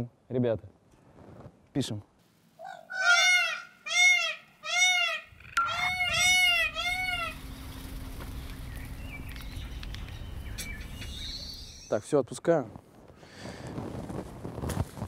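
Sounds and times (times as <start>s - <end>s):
peacock calling: 2.6s - 12.0s
low steady rumble: 5.6s - 11.7s.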